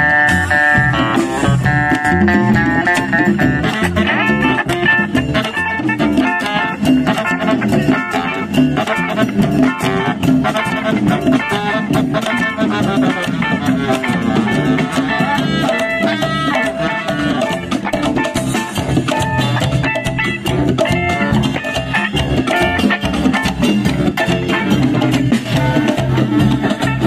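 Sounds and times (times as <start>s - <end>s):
plucked double bass: 0.0s - 5.8s
baritone saxophone: 0.0s - 27.0s
drum kit: 0.0s - 27.0s
electric guitar: 0.0s - 27.0s.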